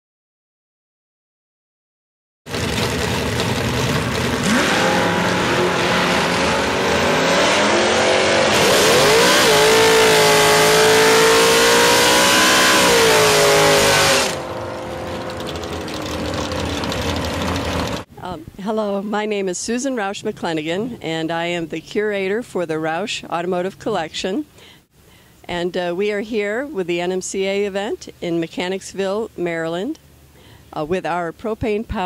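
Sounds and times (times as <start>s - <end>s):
car engine revving: 2.5s - 18.1s
tyres spinning: 13.7s - 18.1s.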